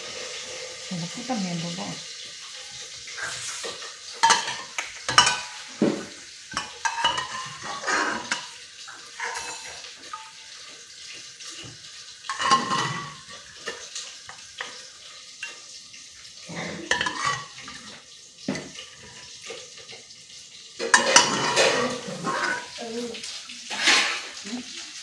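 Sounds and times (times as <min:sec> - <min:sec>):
metal spoon scraping in pot: 0:16.7 - 0:17.6.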